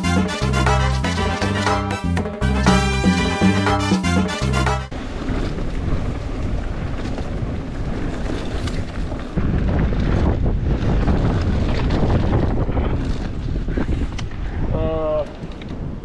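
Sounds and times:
music: 0.0 - 4.9
bike tyre and frame noise: 4.9 - 16.0
wind rushing over microphone: 4.9 - 16.0.

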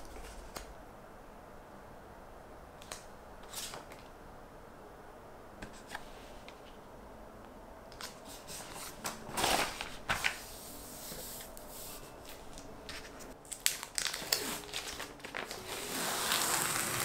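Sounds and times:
plastic pages rustling: 8.0 - 10.6, 12.3 - 17.0.

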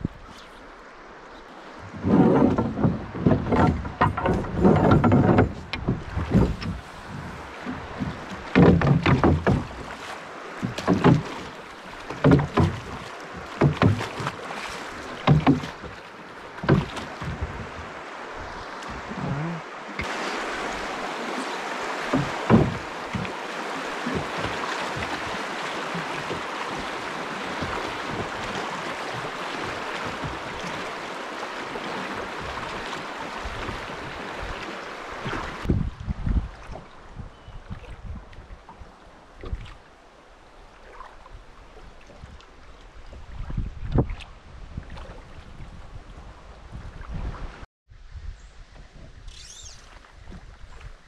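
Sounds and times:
river water rushing: 0.0 - 35.7
oars knocking and splashing: 0.0 - 45.6.

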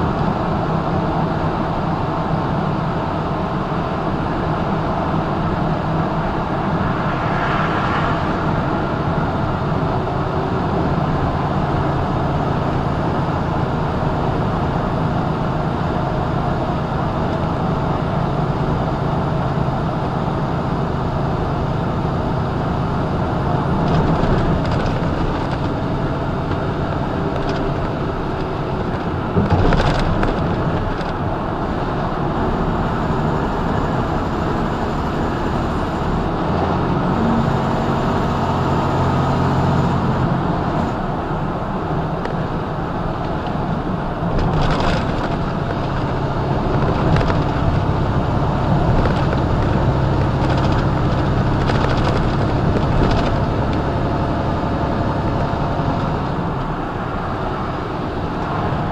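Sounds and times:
truck road and engine noise: 0.0 - 58.9.

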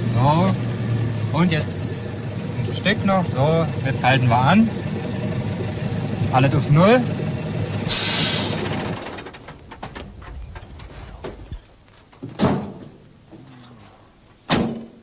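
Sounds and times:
diesel truck engine stopping: 0.0 - 13.2
truck door slamming: 7.9 - 13.0.

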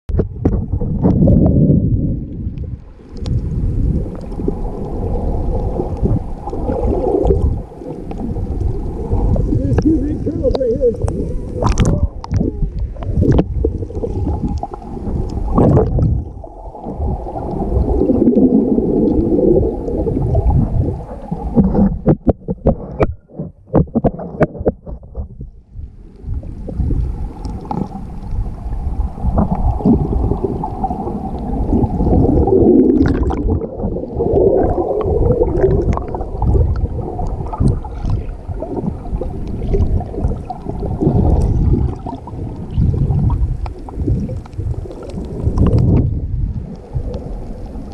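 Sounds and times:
underwater water rumble and gurgling: 0.1 - 47.9.

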